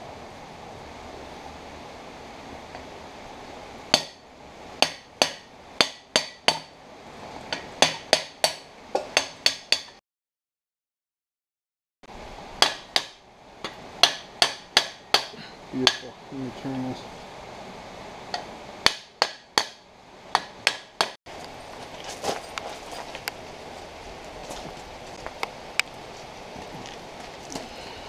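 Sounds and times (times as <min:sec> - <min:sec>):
hammer striking metal pipe: 0:03.9 - 0:04.2, 0:04.8 - 0:06.7, 0:07.5 - 0:10.0, 0:12.6 - 0:16.1, 0:18.3 - 0:21.2.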